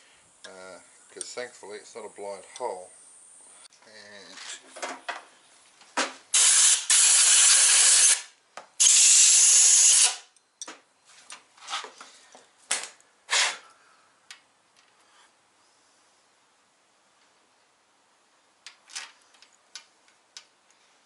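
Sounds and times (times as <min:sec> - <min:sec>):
compressed-air tool hissing: 0:06.3 - 0:10.2
metal parts clicking and rattling: 0:18.6 - 0:20.5.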